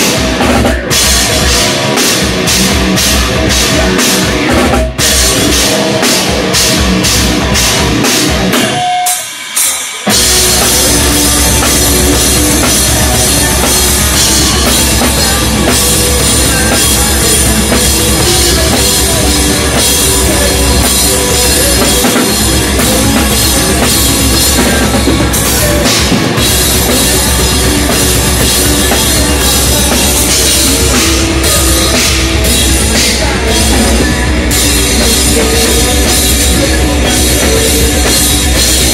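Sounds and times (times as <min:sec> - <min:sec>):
drums and cymbals: 0:00.0 - 0:38.9
heavy metal band playing: 0:00.0 - 0:38.9.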